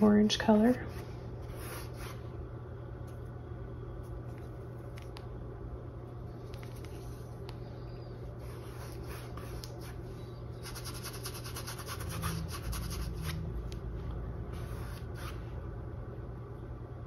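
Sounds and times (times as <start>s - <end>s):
steady low hum: 0.0s - 17.0s
paintbrush scratching on canvas: 10.6s - 13.4s.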